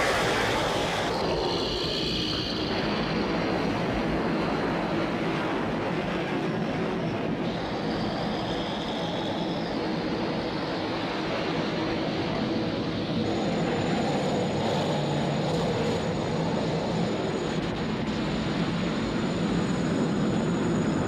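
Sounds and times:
dense rushing energy rumble: 0.0s - 11.2s.

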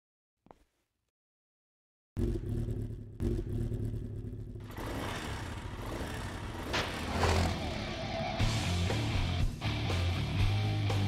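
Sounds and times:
motorcycle engine revving: 2.2s - 9.4s.

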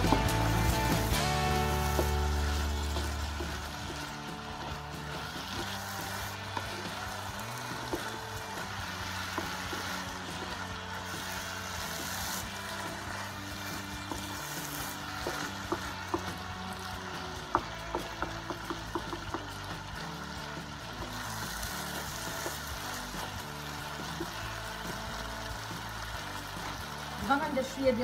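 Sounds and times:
spatula tapping and scraping pan: 0.0s - 10.6s, 11.2s - 20.2s, 20.9s - 23.4s
food sizzling in a frying pan: 0.0s - 28.0s.

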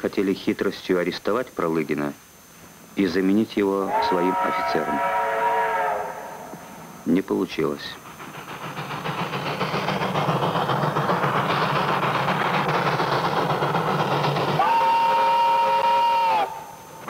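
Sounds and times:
steam locomotive hissing: 0.0s - 17.0s
steam whistle blast: 3.9s - 6.6s, 14.6s - 17.0s.

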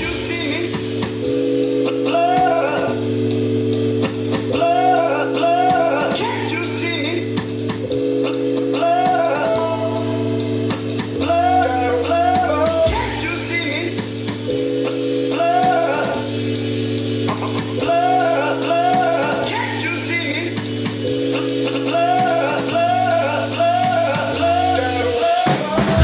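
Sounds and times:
live rock band playing: 0.0s - 26.0s.

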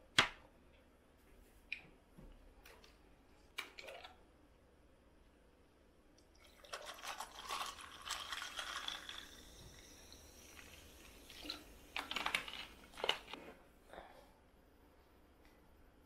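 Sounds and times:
soda pouring over ice: 6.4s - 13.3s.

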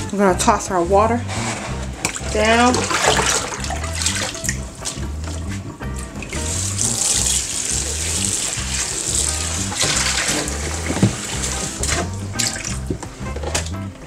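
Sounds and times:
water poured into sink: 1.6s - 5.4s, 6.0s - 12.9s
faucet running into tub: 2.0s - 13.1s.

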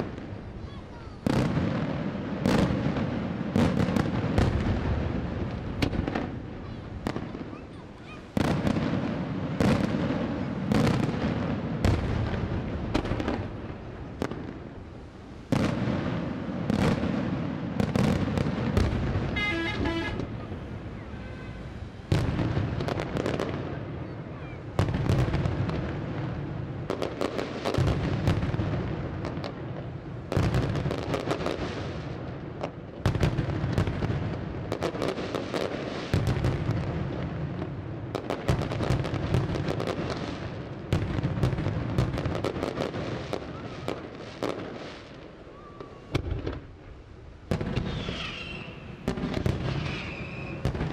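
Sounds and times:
firework shells banging: 18.8s - 20.6s.

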